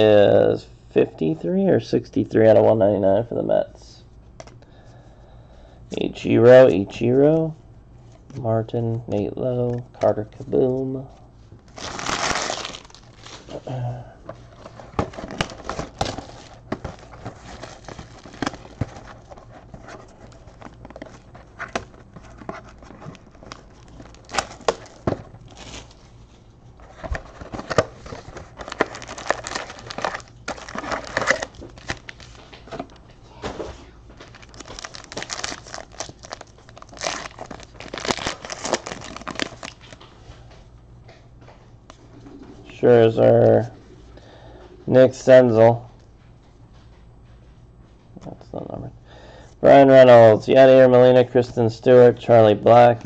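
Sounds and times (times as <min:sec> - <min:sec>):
foil wrapper crinkling and tearing: 0:11.7 - 0:13.6, 0:22.7 - 0:26.1, 0:27.3 - 0:32.4, 0:34.2 - 0:40.0.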